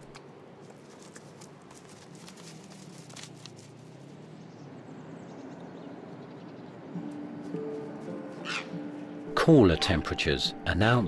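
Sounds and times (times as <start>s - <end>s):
foxes clicking and scuffing: 0.0s - 4.2s.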